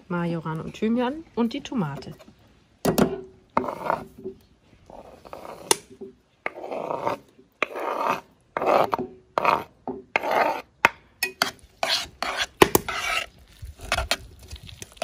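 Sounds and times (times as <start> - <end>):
metal spoon scraping wooden board: 3.6 - 4.3, 4.9 - 14.2.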